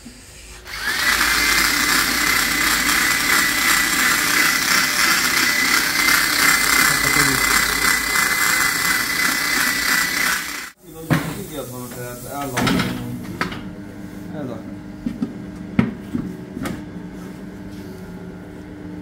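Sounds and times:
power tool whining: 0.6 - 10.8.

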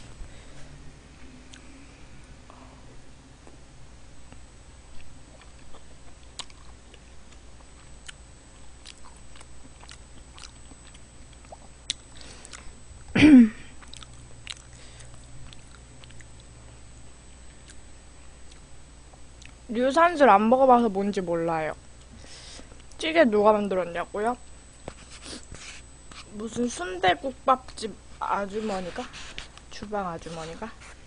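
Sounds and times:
chewing: 4.9 - 8.2, 8.8 - 12.7, 13.8 - 16.5.

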